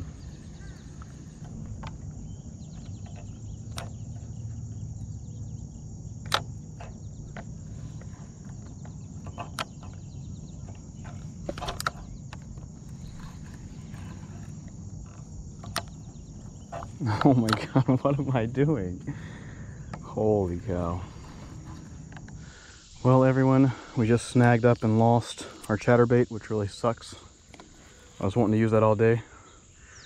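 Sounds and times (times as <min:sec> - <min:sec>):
insect chorus: 0:00.0 - 0:30.0
low outdoor rumble: 0:00.0 - 0:30.0
sharp clicks: 0:06.2 - 0:07.5, 0:14.6 - 0:17.8.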